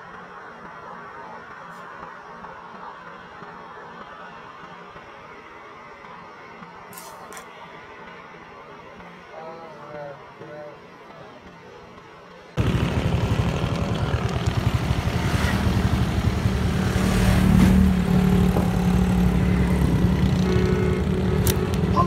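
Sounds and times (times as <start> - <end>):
engine running low rumble: 12.6 - 22.0.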